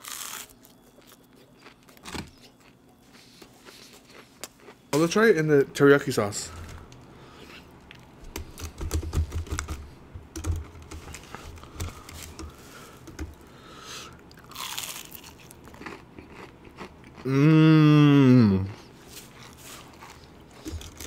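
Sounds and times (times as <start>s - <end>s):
crackling chewing: 0.0s - 5.2s, 14.1s - 17.3s, 18.7s - 21.0s
crunchy bites: 14.3s - 17.3s.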